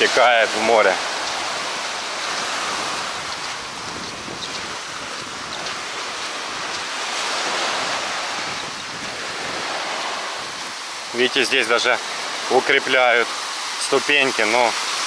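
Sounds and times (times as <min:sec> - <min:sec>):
rain: 0:00.0 - 0:15.0
surf breaking on beach: 0:00.0 - 0:15.0
wind buffeting microphone: 0:00.9 - 0:11.2.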